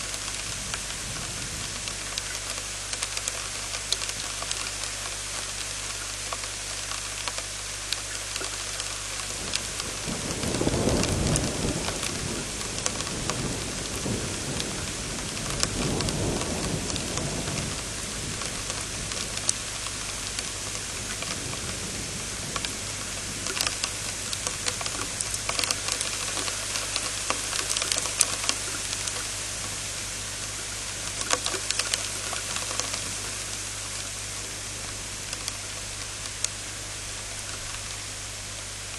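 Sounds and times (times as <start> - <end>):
steady rain: 0.0 - 38.9
thunder rumbling: 9.4 - 35.8.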